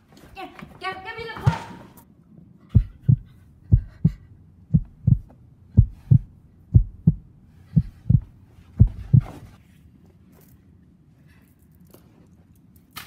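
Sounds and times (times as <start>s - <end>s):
heartbeat thumps: 2.8s - 9.4s.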